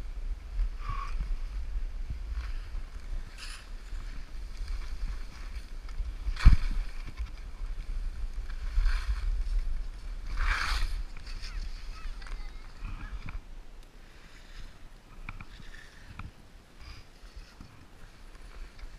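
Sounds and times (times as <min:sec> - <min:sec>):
wind rumble on microphone: 0:00.0 - 0:18.9
skis scraping over snow: 0:01.0 - 0:13.2, 0:14.2 - 0:16.2.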